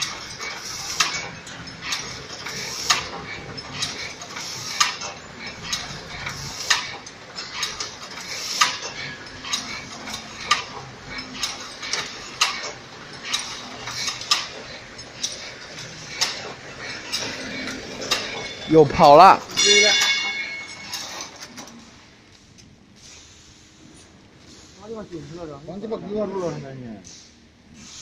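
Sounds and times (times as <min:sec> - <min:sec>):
wire mesh machine running: 0:00.0 - 0:21.8
sharp metallic clack: 0:00.0 - 0:22.0
light metallic clinks: 0:19.5 - 0:21.8.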